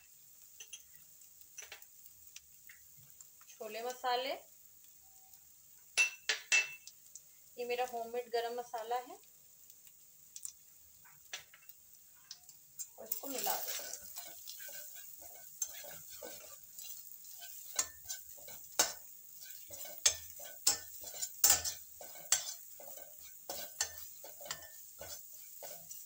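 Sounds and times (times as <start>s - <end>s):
spices sizzling in hot oil: 0.0s - 26.0s
spoon scraping and knocking a pan: 12.8s - 26.0s.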